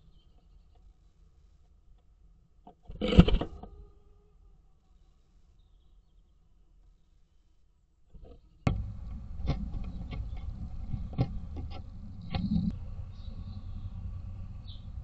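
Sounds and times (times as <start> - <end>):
faint bird chirps: 5.5 - 7.2, 12.2 - 15.0
bird claws scratching on wood: 8.7 - 12.8.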